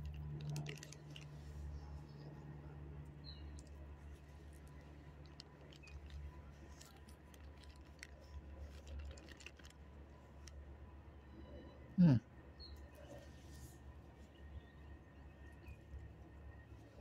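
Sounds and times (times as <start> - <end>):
plastic bag crinkling: 0.0 - 1.5, 4.6 - 10.5
treats rattling in bag: 0.0 - 1.5, 4.6 - 10.6.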